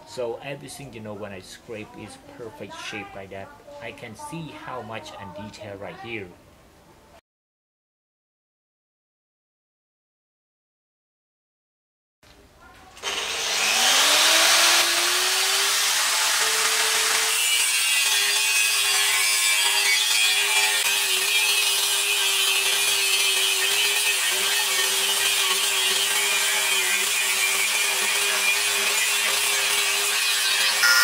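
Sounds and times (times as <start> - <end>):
angle grinder motor whine: 13.0 - 31.0
grinder disc rasping on metal: 13.0 - 31.0.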